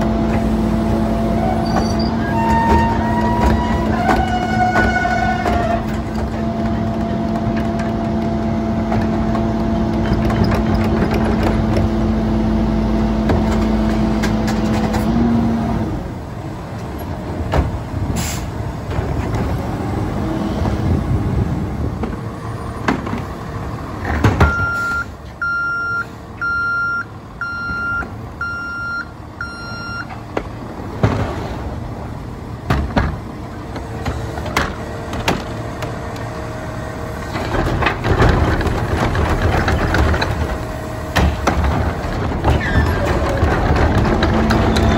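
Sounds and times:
truck reverse alarm beeping: 0:24.4 - 0:30.1.

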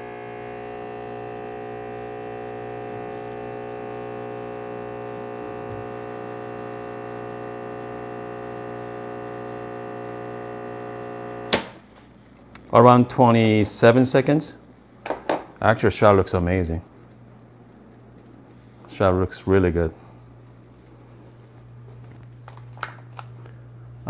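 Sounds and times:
espresso machine pump buzzing: 0:00.0 - 0:11.7.

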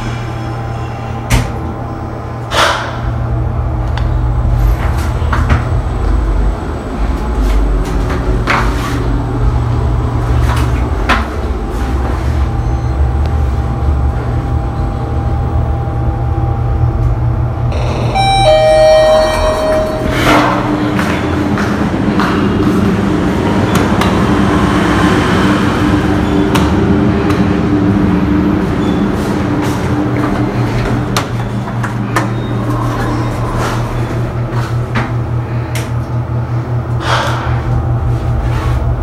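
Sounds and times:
lift car humming: 0:00.0 - 0:39.0
two-note arrival chime: 0:17.8 - 0:21.3.

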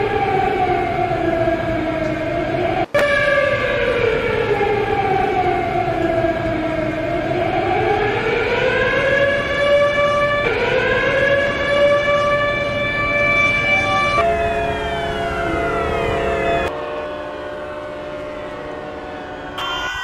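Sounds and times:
civil defence sirens wailing: 0:00.0 - 0:20.0.

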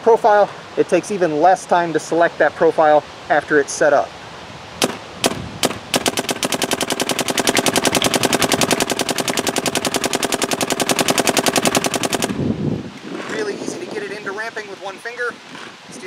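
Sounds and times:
paintball marker firing: 0:04.8 - 0:12.4.

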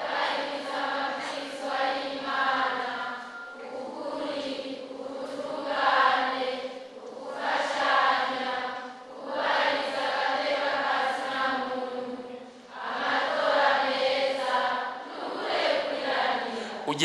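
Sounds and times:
crowd chanting in unison: 0:00.0 - 0:17.0.

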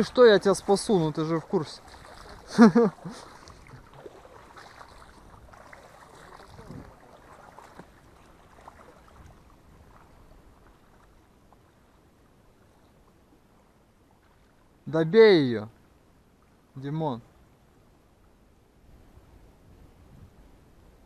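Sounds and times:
water sloshing and splashing: 0:00.0 - 0:14.8.

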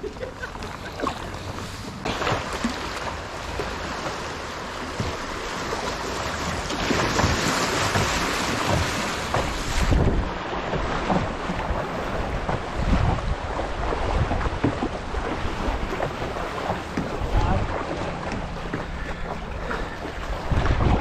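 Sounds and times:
river water rushing: 0:01.1 - 0:21.0
wind buffeting microphone: 0:06.4 - 0:21.0.

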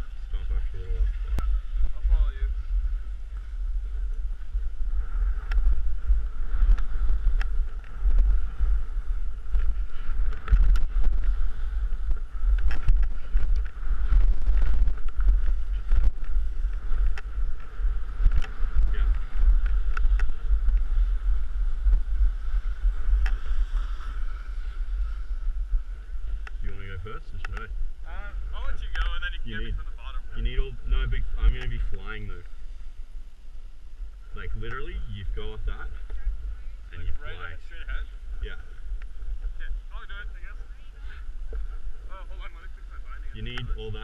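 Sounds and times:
skis scraping over packed snow: 0:00.0 - 0:32.8
wind buffeting microphone: 0:00.0 - 0:44.0.

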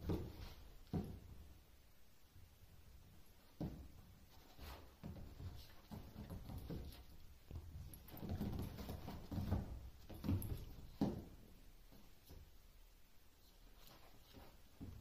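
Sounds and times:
dog paws scrabbling on leather sofa: 0:03.5 - 0:11.4.

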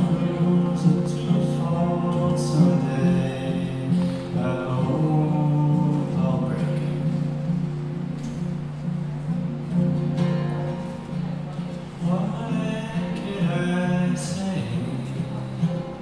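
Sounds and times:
man singing: 0:00.0 - 0:07.4, 0:12.0 - 0:16.0
acoustic guitar: 0:00.0 - 0:16.0.

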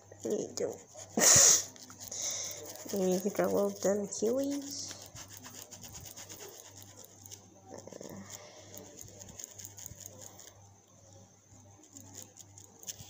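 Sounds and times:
steady low hum: 0:00.0 - 0:13.0
pencil scratching on paper: 0:00.5 - 0:07.4, 0:08.8 - 0:10.5.

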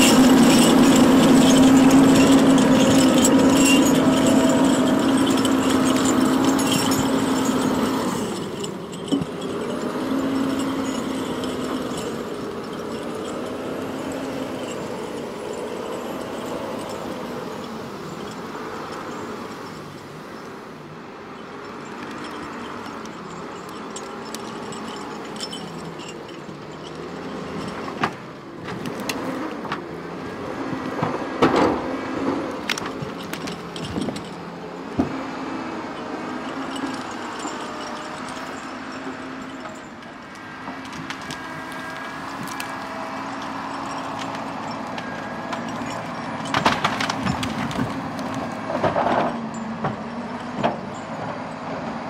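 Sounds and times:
diesel engine running: 0:00.0 - 0:52.0
wooden knocks and cracks: 0:44.1 - 0:50.0.

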